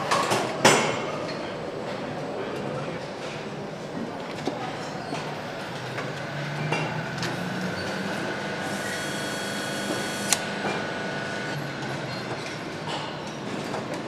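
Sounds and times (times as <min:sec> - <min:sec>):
factory machinery din: 0:05.1 - 0:13.8.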